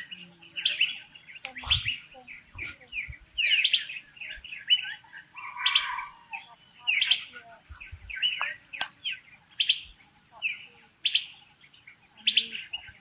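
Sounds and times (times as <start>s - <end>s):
birds chirping: 0.0s - 13.0s
sharp click: 8.4s - 9.0s.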